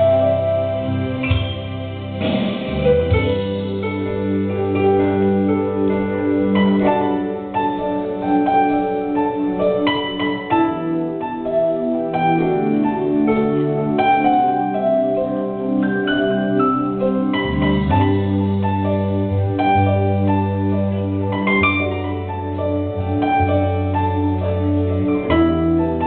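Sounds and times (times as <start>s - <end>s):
held low bass notes: 0.0s - 26.0s
plucked harp-like keyboard notes: 1.2s - 1.8s.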